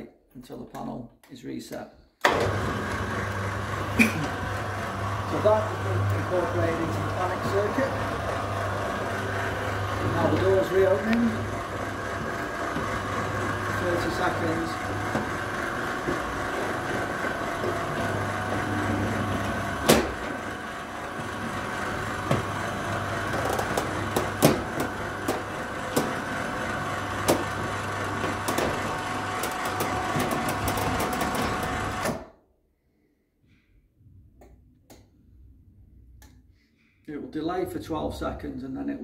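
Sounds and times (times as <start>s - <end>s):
electric motor hum: 2.3s - 32.3s.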